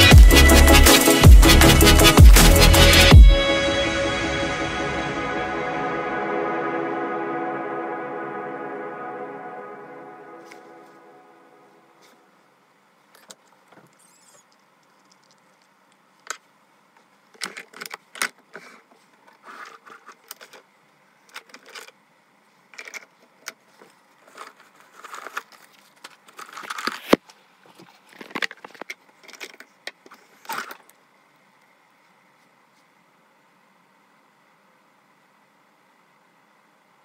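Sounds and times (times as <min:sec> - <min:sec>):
handling noise on microphone: 0:22.7 - 0:30.9.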